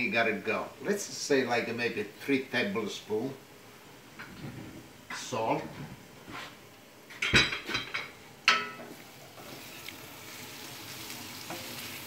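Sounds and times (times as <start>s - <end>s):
kitchenware clatter: 7.1s - 9.0s
onion and garlic sizzling: 8.1s - 12.0s.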